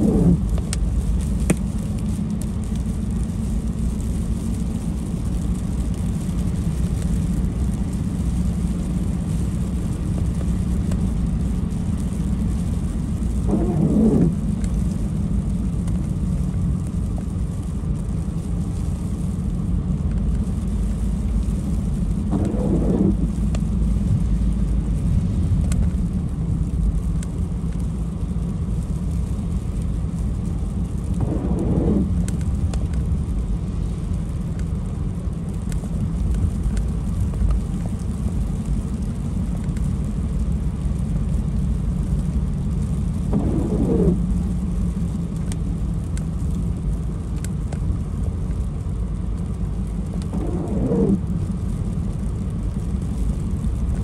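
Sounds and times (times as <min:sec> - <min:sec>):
car road and engine rumble: 0:00.0 - 0:54.0
wiper squeaking on wet glass: 0:13.5 - 0:14.4, 0:22.3 - 0:23.2, 0:43.3 - 0:44.2, 0:50.4 - 0:51.2.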